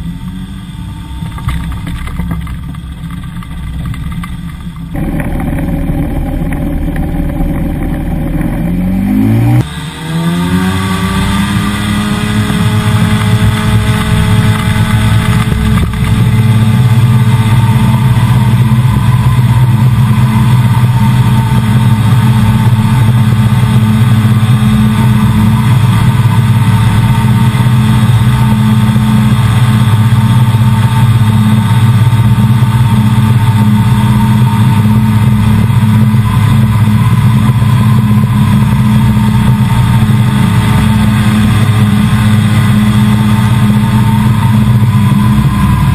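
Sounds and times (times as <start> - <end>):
ultralight engine and propeller drone: 0.0 - 45.9.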